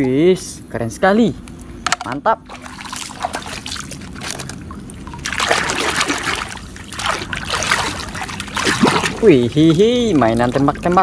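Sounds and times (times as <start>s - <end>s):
water splashing and sloshing: 2.0s - 11.0s
hand scrubbing toy in water: 5.2s - 11.0s.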